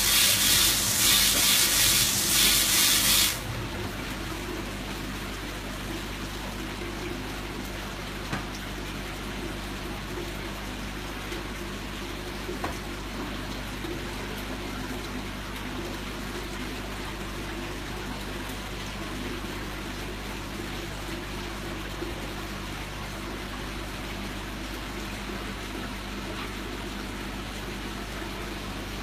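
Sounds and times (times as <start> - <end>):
low pump hum: 0.0 - 29.0.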